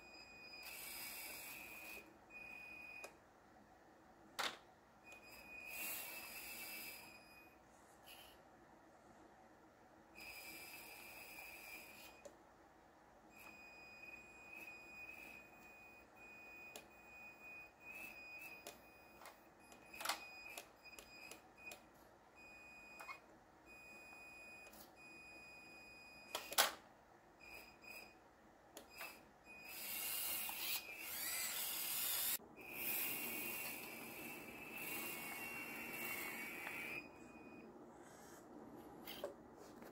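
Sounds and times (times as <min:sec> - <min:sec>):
electric motors whining: 0:00.6 - 0:02.1, 0:05.2 - 0:07.2, 0:28.8 - 0:38.4.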